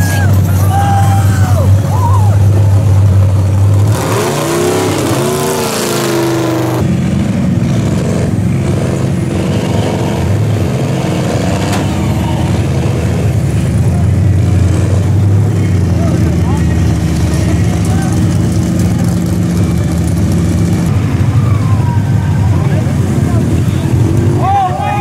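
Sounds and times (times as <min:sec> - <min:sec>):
big truck engines revving: 0:00.0 - 0:25.0.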